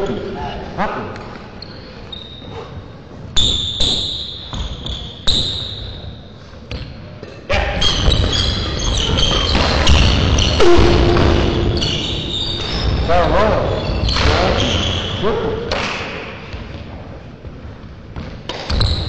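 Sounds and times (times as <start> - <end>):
shoes squeaking on court: 1.4 - 7.2, 7.8 - 15.2
loud steady noise: 9.9 - 13.6.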